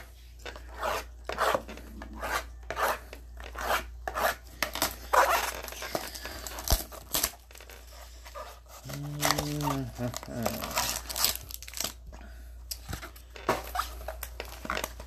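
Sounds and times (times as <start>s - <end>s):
plastic wrap crinkling: 4.8s - 12.1s.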